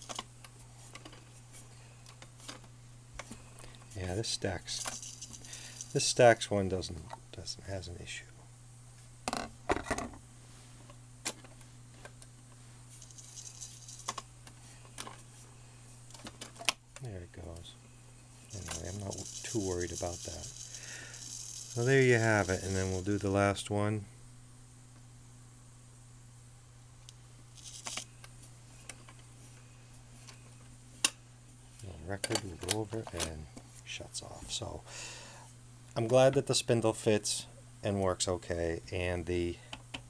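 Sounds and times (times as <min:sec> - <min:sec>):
steady low hum: 0:00.0 - 0:40.0
record changer rattle: 0:18.6 - 0:23.2.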